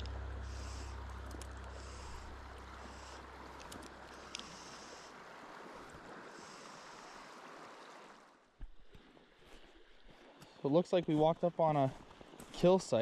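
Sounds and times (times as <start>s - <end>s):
river current rushing: 0.0s - 8.6s
light clicks: 0.8s - 4.6s.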